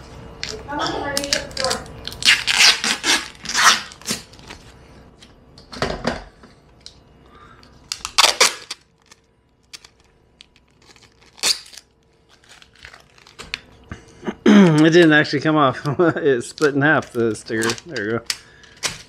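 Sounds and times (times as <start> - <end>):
plastic film peeling and crinkling: 1.2 - 4.7, 7.9 - 13.8, 16.4 - 19.0.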